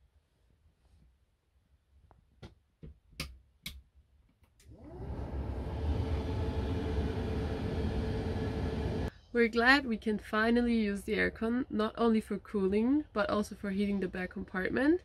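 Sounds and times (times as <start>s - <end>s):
blower fan rushing air: 4.7s - 9.1s.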